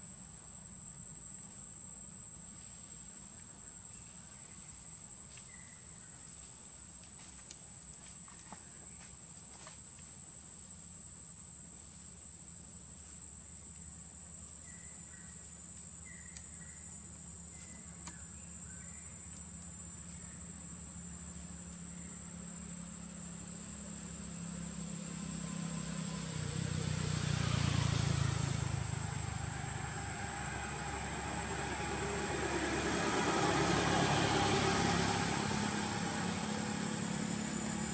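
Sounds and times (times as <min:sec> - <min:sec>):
motor vehicle passing: 0:22.0 - 0:37.9.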